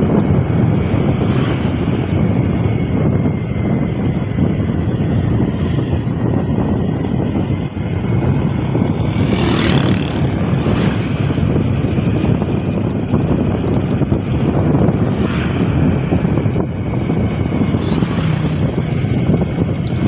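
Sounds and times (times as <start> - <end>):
vehicle and road noise: 0.0 - 20.0
wind buffeting microphone: 0.0 - 20.0.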